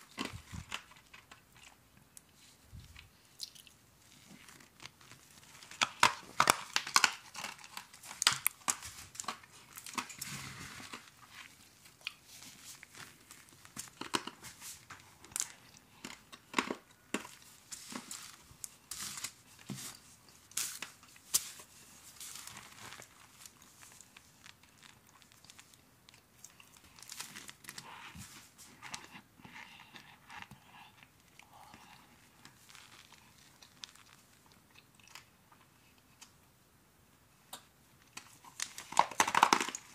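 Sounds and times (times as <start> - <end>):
cornstarch crackling over ice: 31.7 - 35.2.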